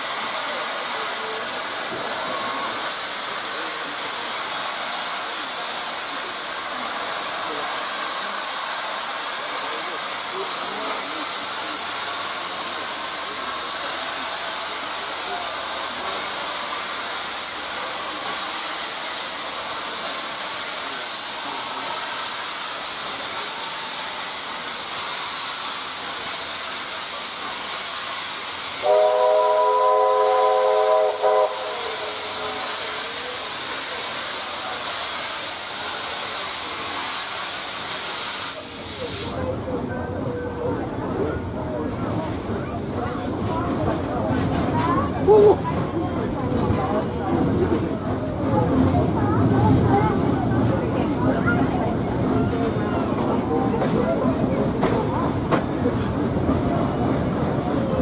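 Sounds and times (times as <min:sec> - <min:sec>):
steam hiss and rushing air: 0:00.0 - 0:39.6
steam whistle: 0:28.8 - 0:32.6.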